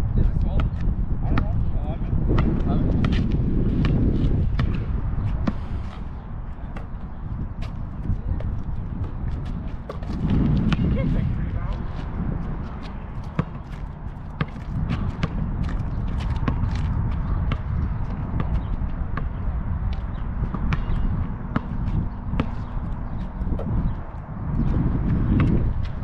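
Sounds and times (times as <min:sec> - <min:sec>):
low rumble: 0:02.1 - 0:26.0
basketball bouncing on asphalt: 0:02.2 - 0:05.9, 0:06.6 - 0:10.9, 0:12.0 - 0:26.0
sneaker steps: 0:02.4 - 0:26.0.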